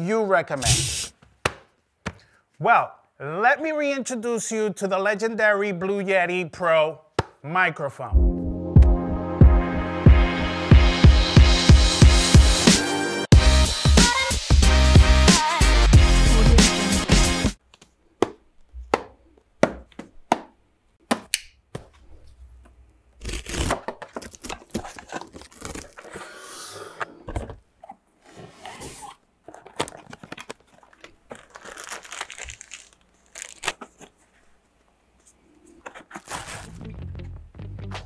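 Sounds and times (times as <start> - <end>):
plastic wrapping crinkling: 24.0 - 26.1, 29.4 - 34.2, 35.8 - 36.8
cardboard sliding and rustling: 35.8 - 36.8.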